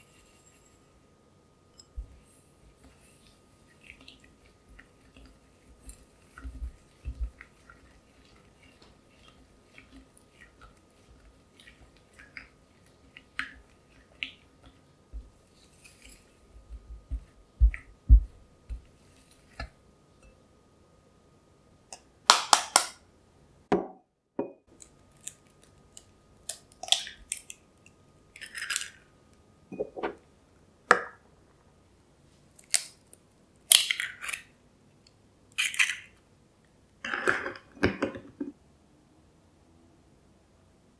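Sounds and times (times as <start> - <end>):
spatula scraping glass bowl: 2.8 - 14.7
egg cracking: 32.6 - 34.5, 35.5 - 36.2.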